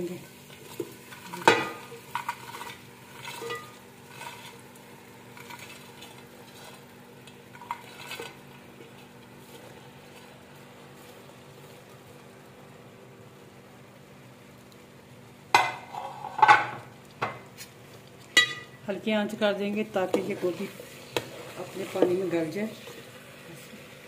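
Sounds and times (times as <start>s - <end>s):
masala sizzling: 0.0s - 24.0s.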